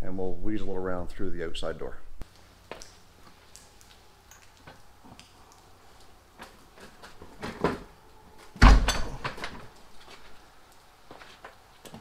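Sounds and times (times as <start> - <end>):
heavy metal clunk with rattle: 8.6 - 9.6.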